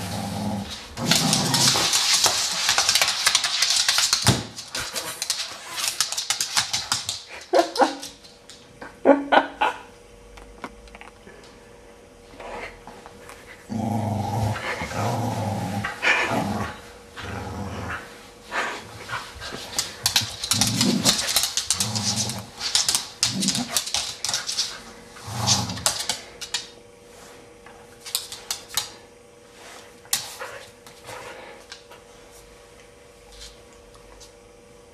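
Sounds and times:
dog growling: 0:00.0 - 0:02.0, 0:13.7 - 0:18.7, 0:20.5 - 0:23.9.

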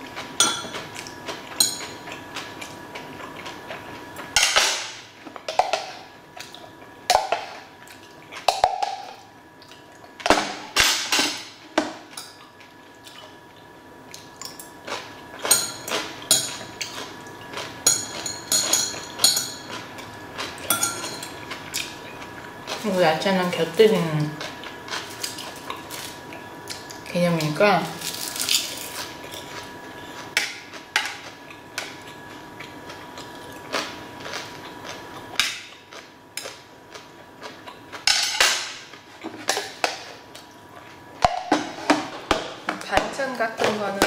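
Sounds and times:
chewing: 0:00.2 - 0:04.3, 0:28.5 - 0:38.0
utensils clinking on metal trays: 0:00.4 - 0:00.9, 0:17.8 - 0:19.8, 0:20.6 - 0:21.4.

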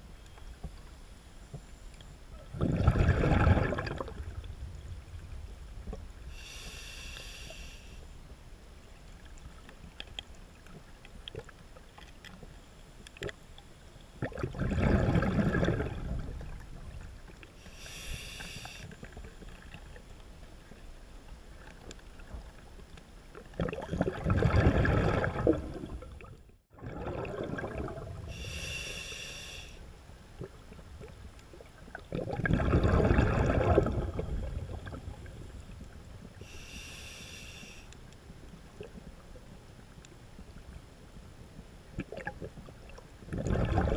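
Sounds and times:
bubbles from diver exhaling: 0:02.5 - 0:04.4, 0:14.2 - 0:16.6, 0:23.6 - 0:28.3, 0:32.0 - 0:35.1, 0:43.3 - 0:43.9
regulator hissing inhalation: 0:06.3 - 0:08.0, 0:17.6 - 0:18.9, 0:28.3 - 0:29.8, 0:36.4 - 0:37.9.

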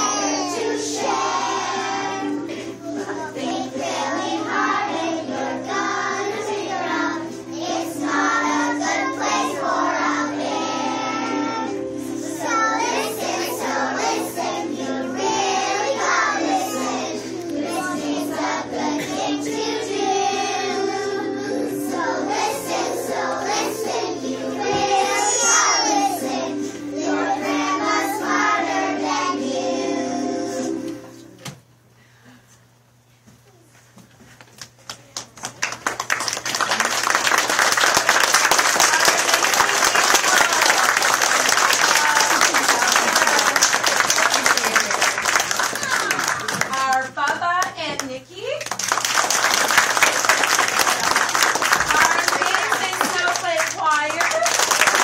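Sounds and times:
children singing: 0:00.0 - 0:31.0.

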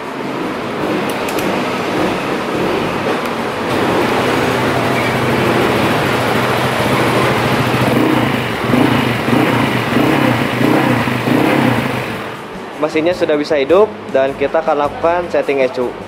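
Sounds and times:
scooter engine idling and revving: 0:00.0 - 0:12.5.

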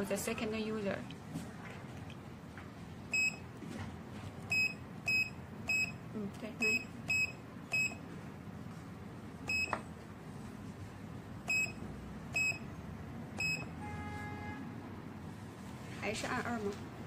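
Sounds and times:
keypad beeps: 0:03.1 - 0:03.4, 0:04.5 - 0:06.0, 0:06.6 - 0:08.0, 0:09.5 - 0:09.8, 0:11.5 - 0:11.8, 0:12.4 - 0:12.7, 0:13.4 - 0:13.7.

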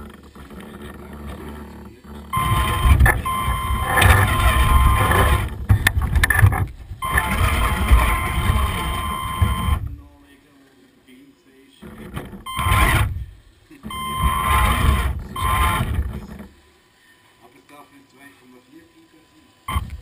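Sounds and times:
toy truck motor whining: 0:00.0 - 0:10.1, 0:11.8 - 0:16.6, 0:19.7 - 0:20.0.

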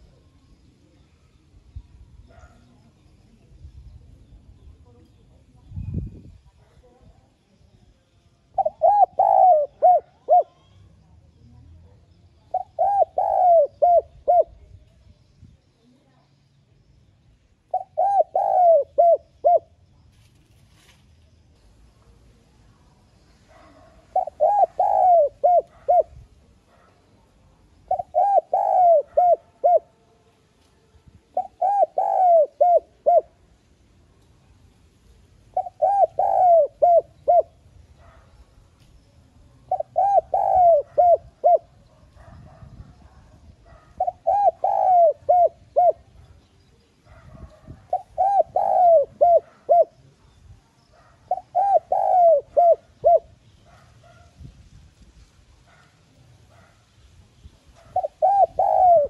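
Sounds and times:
dove cooing: 0:08.5 - 0:10.8, 0:12.5 - 0:14.6, 0:17.7 - 0:19.8, 0:23.5 - 0:27.0, 0:27.8 - 0:30.0, 0:31.3 - 0:33.5, 0:35.5 - 0:38.3, 0:39.6 - 0:46.4, 0:47.1 - 0:50.3, 0:50.9 - 0:54.3, 0:57.7 - 0:59.0.

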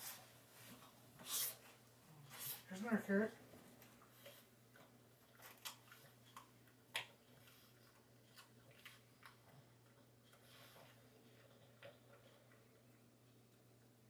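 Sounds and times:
dog chewing a carrot: 0:03.8 - 0:14.0.

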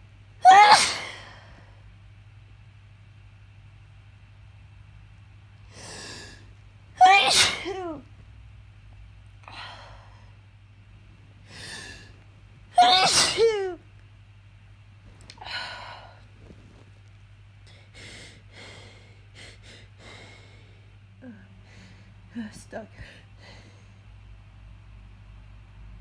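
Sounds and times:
person sneezing: 0:00.4 - 0:01.5, 0:07.0 - 0:08.0, 0:12.8 - 0:13.7.

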